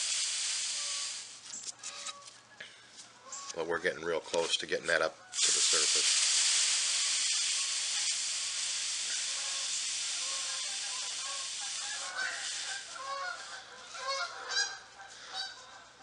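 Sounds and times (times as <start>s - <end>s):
steam hissing from iron: 0.0s - 1.4s, 5.4s - 13.6s.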